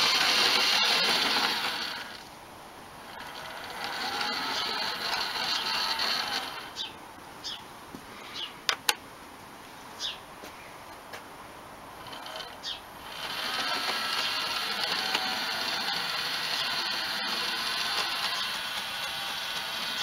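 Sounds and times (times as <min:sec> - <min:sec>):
model locomotive running on track: 0:00.0 - 0:02.2, 0:12.1 - 0:20.0.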